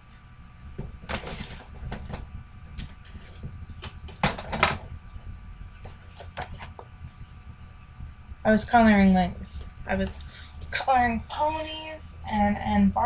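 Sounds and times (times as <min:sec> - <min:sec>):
scraping shuffle: 0:02.8 - 0:03.6.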